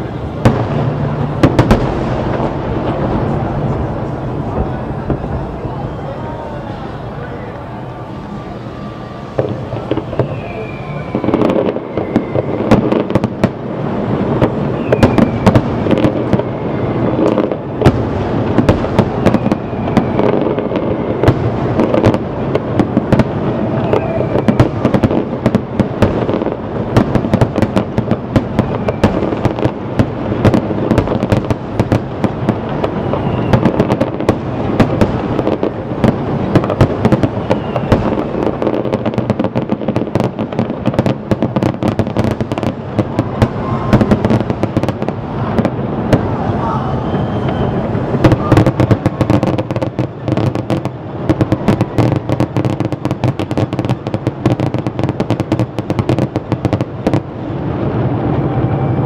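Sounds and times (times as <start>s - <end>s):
fireworks bursting: 0.0s - 59.0s
rumble of booms: 0.2s - 5.9s.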